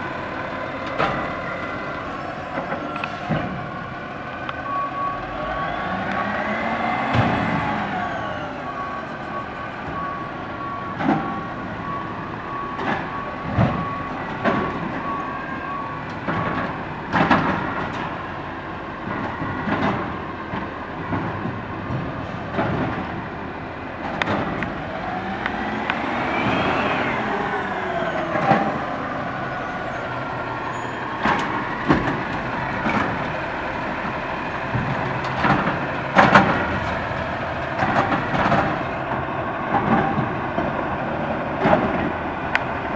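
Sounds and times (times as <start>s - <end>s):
reversing beeper: 0.0s - 17.6s, 24.4s - 33.3s
garbage truck engine revving: 0.0s - 42.9s
metal arm and carts clanking: 0.0s - 42.9s.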